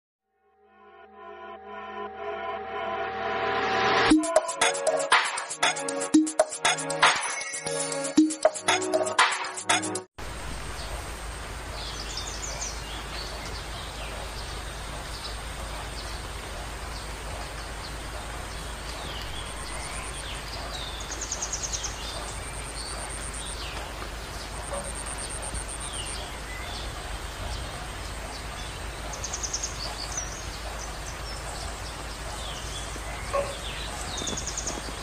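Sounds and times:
insects buzzing and trilling: 10.8 - 35.0
birds chirping: 11.7 - 35.0.

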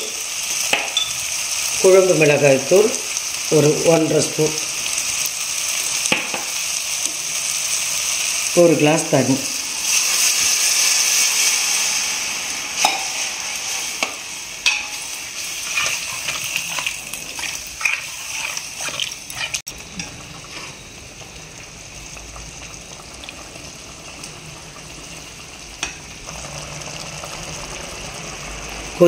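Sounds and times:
gravy bubbling and hissing: 1.2 - 29.0
metal spoon scraping a pan: 12.8 - 20.8.

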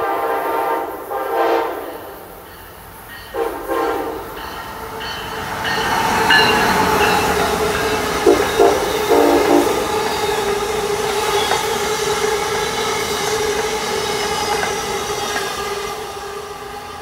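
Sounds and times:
passenger train rolling past: 0.0 - 17.0
wheels clicking over rail joints: 10.0 - 15.8.

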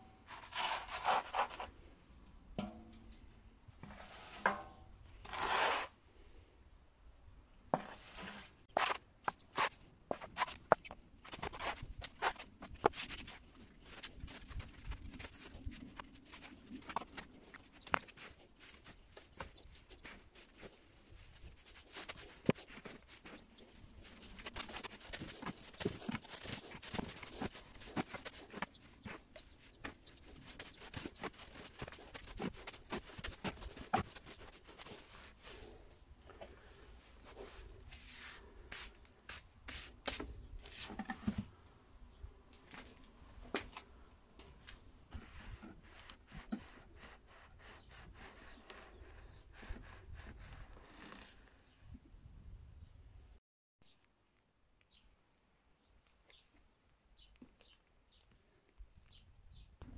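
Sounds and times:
wood shavings rustling and crackling: 11.4 - 35.8.

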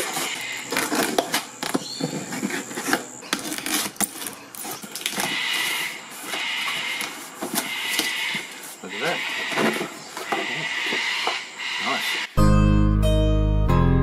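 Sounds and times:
blade scraping packing tape: 0.0 - 10.0
cardboard flaps creaking and rustling: 0.0 - 11.0
high insect drone: 0.0 - 12.4
cockatoos screeching: 5.2 - 12.3.

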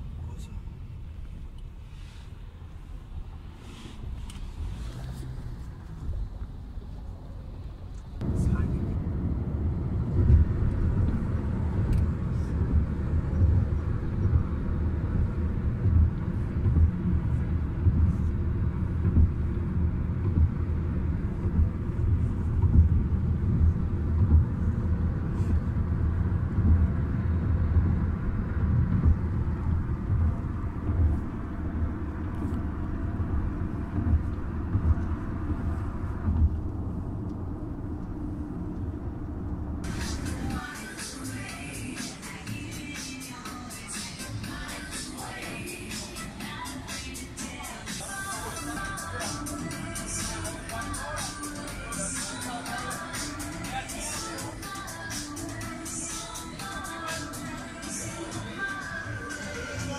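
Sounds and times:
car road and engine rumble: 0.0 - 59.9.

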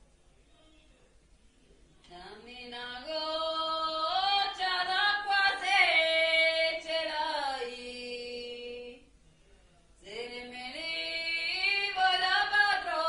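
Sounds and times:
women singing in harmony: 2.1 - 9.0, 10.1 - 13.0.

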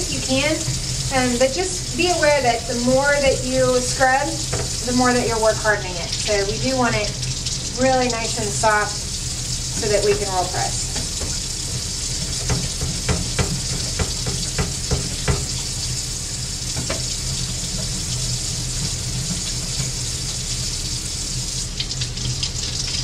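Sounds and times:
tap running into metal sink: 4.4 - 5.2, 9.7 - 15.7, 16.7 - 18.2.

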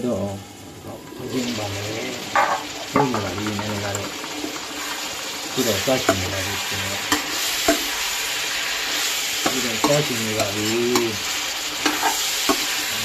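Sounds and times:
meat sizzling in oil: 0.0 - 13.0
metal spatula scraping pot: 8.6 - 12.9.

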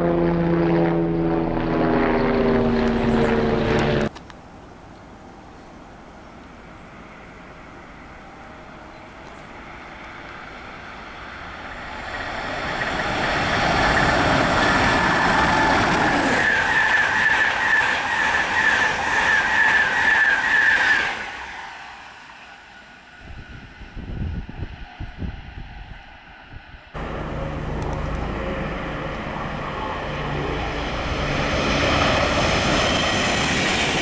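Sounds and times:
high train whine: 0.0 - 34.0
train wheels rushing on rails: 8.9 - 24.9, 27.0 - 34.0.

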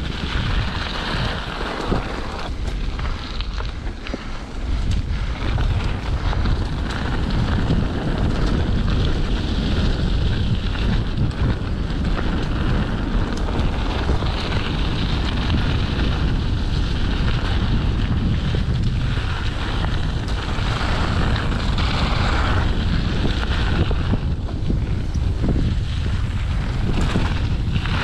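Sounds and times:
tyres rolling on dirt trail: 0.0 - 28.0
wind buffeting microphone: 0.0 - 28.0.

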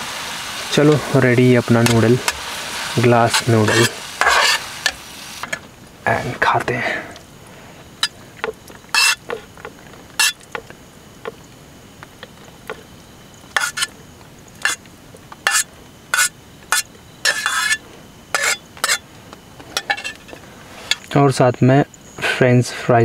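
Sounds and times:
faint steady hiss: 0.0 - 23.0
utensil scraping metal pot: 1.8 - 5.6, 8.0 - 10.7, 13.5 - 14.0, 14.6 - 19.1, 19.7 - 21.1.

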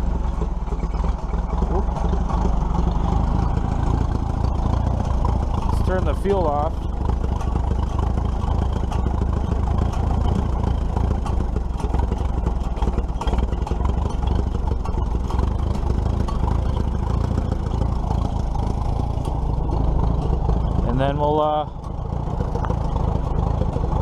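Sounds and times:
tractor engine idling: 0.0 - 24.0.

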